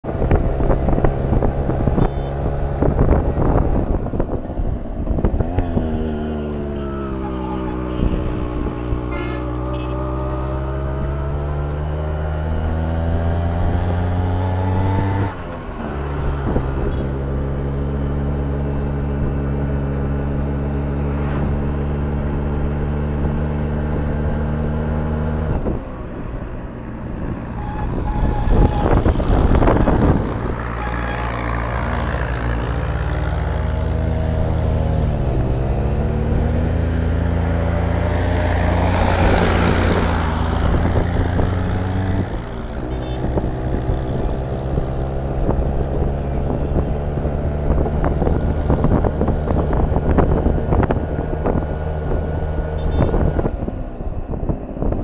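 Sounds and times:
wind gusts on microphone: 0:00.0 - 0:06.5, 0:25.2 - 0:55.0
vehicle engine driving: 0:00.0 - 0:55.0.

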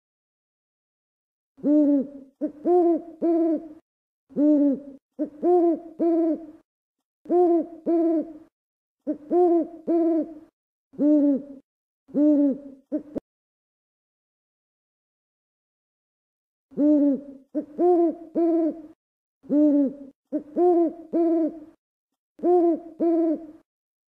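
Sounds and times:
owl hooting: 0:01.6 - 0:06.6, 0:07.3 - 0:13.2, 0:16.8 - 0:21.8, 0:22.4 - 0:23.6.

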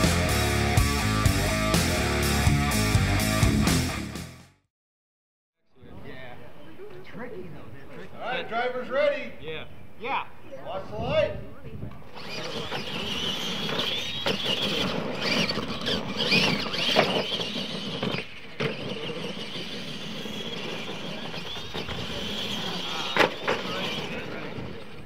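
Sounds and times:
tyre and drivetrain noise: 0:11.9 - 0:25.0
rc truck motor whine: 0:12.0 - 0:25.0.

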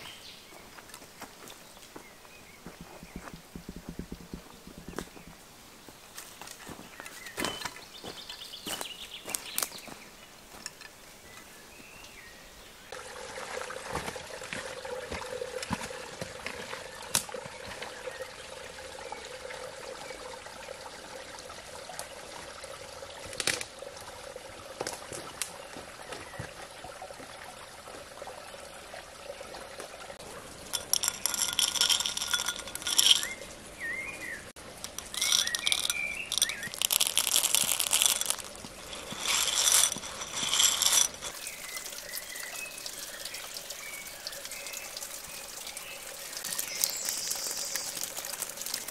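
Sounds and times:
stream water running: 0:00.0 - 0:48.9
chickpeas rattling in clay bowl: 0:30.6 - 0:33.5, 0:34.7 - 0:41.9, 0:46.4 - 0:48.9
rustling through undergrowth: 0:34.7 - 0:42.0
bird chirps: 0:45.7 - 0:48.1.

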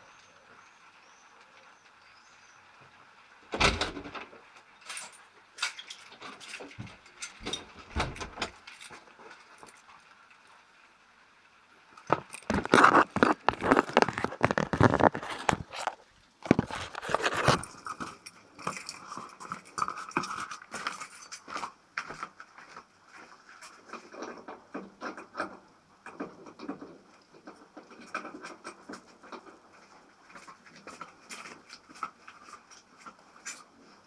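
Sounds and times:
microphone handling noise: 0:12.1 - 0:17.8.

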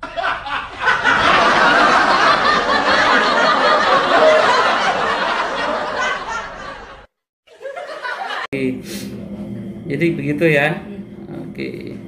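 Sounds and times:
loud laughter: 0:00.0 - 0:08.5.

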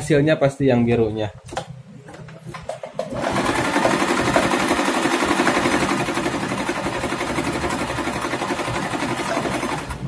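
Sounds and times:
electric sewing machine running: 0:03.0 - 0:10.0.

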